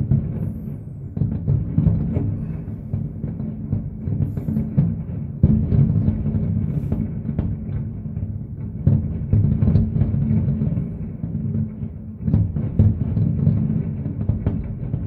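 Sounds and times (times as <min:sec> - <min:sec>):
distant fireworks booms and bangs: 0:00.0 - 0:15.0.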